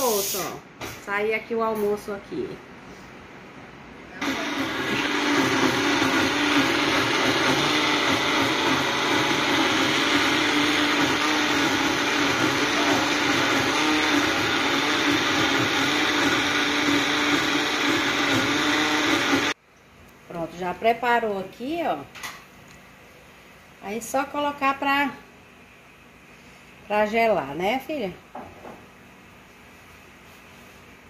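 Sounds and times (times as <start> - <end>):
blender humming: 4.2 - 19.6.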